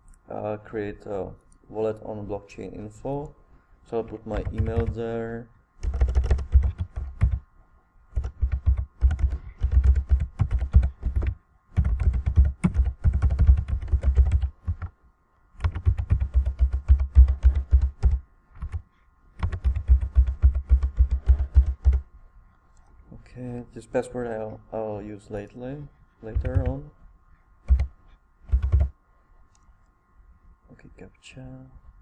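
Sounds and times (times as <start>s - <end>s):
computer keyboard typing: 4.0s - 5.0s, 5.8s - 7.4s, 8.1s - 14.9s, 15.6s - 22.0s, 26.3s - 26.8s, 27.6s - 27.9s, 28.5s - 28.9s.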